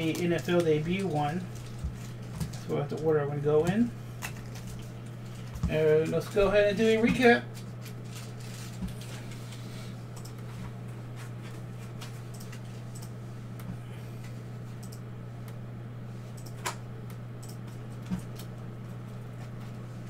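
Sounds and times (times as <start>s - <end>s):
low electrical hum: 0.0s - 20.0s.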